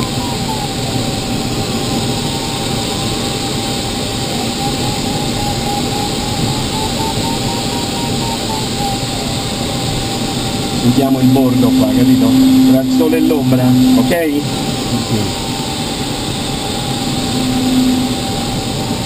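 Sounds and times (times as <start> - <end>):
variometer beeping tone: 4.4 - 10.0, 10.7 - 18.5.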